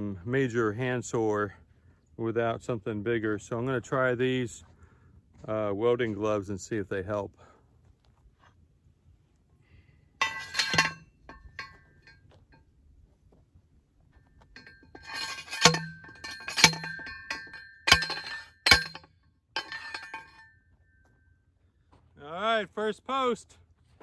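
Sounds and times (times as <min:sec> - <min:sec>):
post driver ringing clanks: 0:10.2 - 0:12.2, 0:14.5 - 0:20.6
metal clatter: 0:10.2 - 0:12.7, 0:14.1 - 0:21.0.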